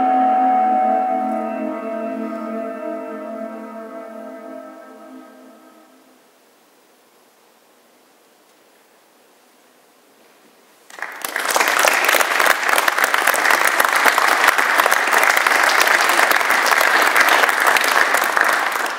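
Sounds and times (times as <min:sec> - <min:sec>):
faint room noise: 0:00.0 - 0:18.9
audience applause: 0:10.9 - 0:18.9.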